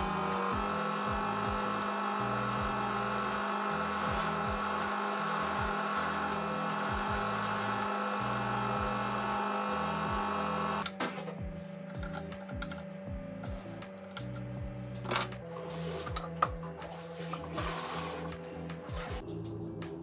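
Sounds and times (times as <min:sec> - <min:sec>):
metal lathe motor whining: 0:00.0 - 0:10.9.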